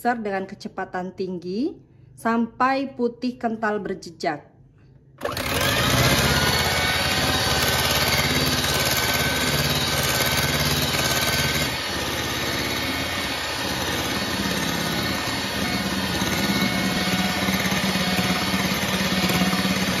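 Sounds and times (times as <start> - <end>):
electric hand mixer running: 5.2 - 20.0.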